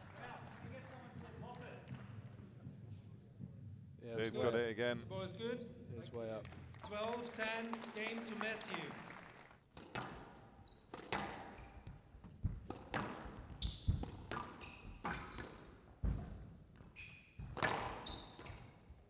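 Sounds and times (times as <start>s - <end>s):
squash ball struck by rackets: 9.8s - 16.5s, 17.4s - 18.6s
shoes squeaking on court floor: 10.0s - 19.0s.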